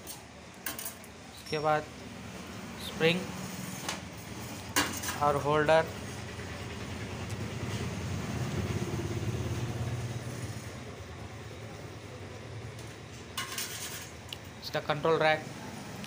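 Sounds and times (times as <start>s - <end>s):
passing vehicle engine rumble: 4.6s - 12.7s.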